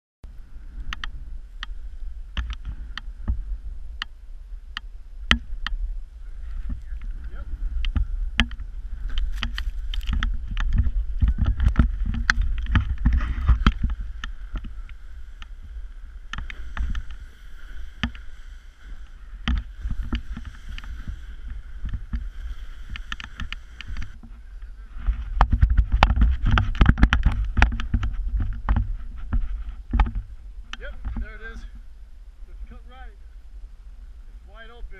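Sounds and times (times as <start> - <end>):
snowboard riding through powder: 0.3 - 32.2.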